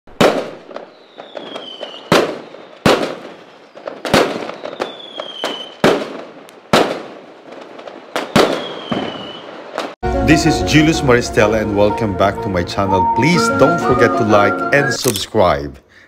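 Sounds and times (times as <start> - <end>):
fireworks bangs: 0.1 - 10.0
fireworks crackling: 0.1 - 10.0
descending firework whistles: 0.4 - 5.8, 8.1 - 10.0.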